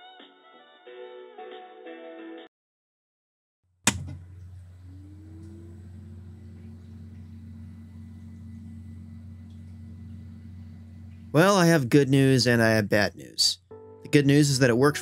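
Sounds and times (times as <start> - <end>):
power switch click: 3.9 - 4.5
computer humming: 3.9 - 15.0
rising tone: 4.7 - 12.0.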